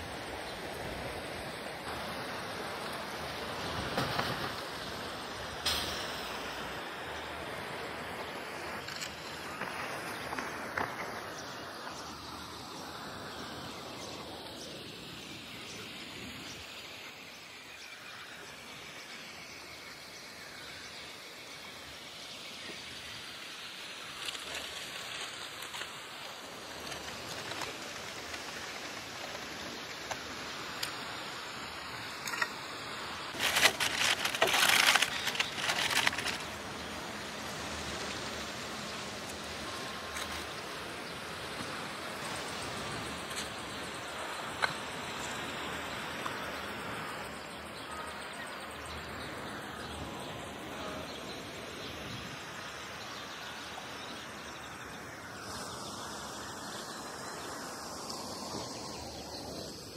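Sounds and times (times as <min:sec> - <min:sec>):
outdoor background hiss: 0:00.0 - 0:59.9
rustling handling noise: 0:33.3 - 0:37.0.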